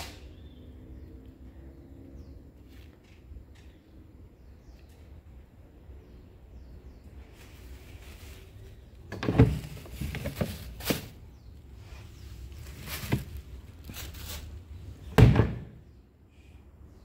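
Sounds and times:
plastic bin knocking and rattling: 9.1 - 11.2, 12.7 - 13.4, 15.2 - 15.7
bin lid dropped shut: 15.1 - 15.8.

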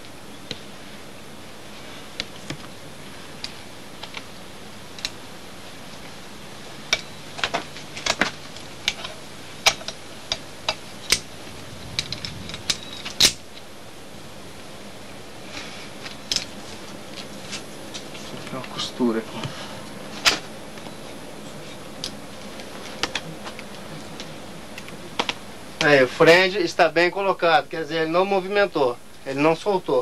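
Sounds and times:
climbing hardware clinking: 8.9 - 13.4.

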